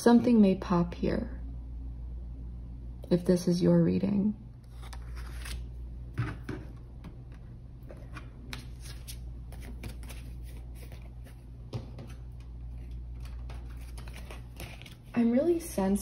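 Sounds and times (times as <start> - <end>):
low steady hum: 0.0 - 16.0
cards being shuffled: 4.7 - 5.7, 7.9 - 11.4, 12.0 - 15.2.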